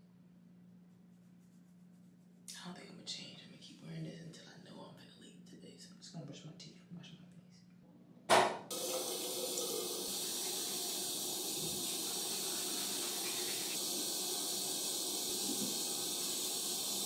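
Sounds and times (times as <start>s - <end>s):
water running into sink: 8.7s - 17.0s.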